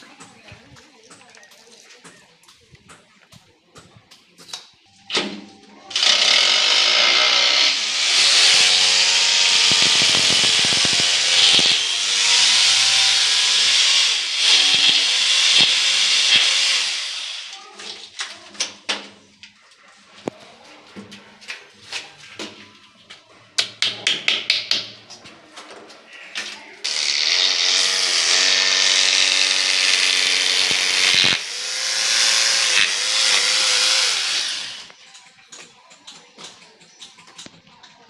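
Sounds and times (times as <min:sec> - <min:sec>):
rotary hammer drill drilling: 0:05.9 - 0:17.6, 0:26.9 - 0:35.0.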